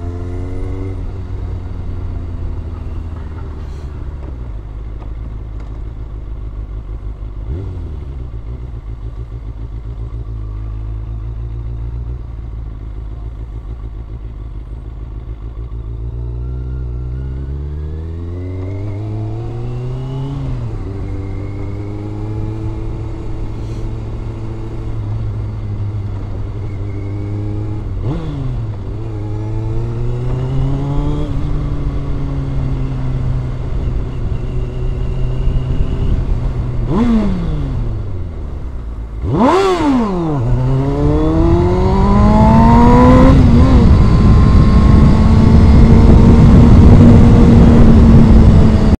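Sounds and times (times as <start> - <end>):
motorcycle engine revving: 0.0 - 49.0
wind rushing over microphone: 27.7 - 49.0.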